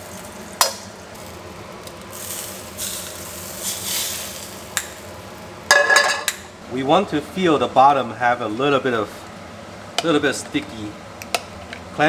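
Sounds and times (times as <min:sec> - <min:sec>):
oil sizzling in a frying pan: 0:00.0 - 0:06.6.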